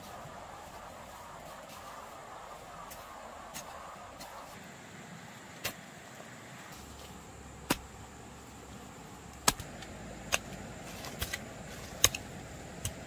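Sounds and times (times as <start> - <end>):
hoe chopping into dry soil: 5.6 - 5.9, 7.6 - 8.0, 9.4 - 13.0.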